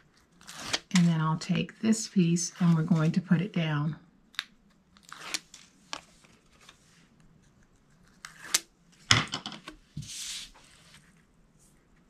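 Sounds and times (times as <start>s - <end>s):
tape liner peeling: 0.2s - 1.0s, 4.9s - 5.6s, 7.8s - 8.7s.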